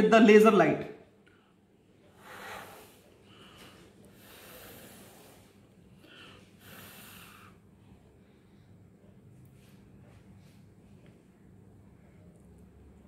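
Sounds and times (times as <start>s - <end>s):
man breathing through nose: 2.1s - 7.7s.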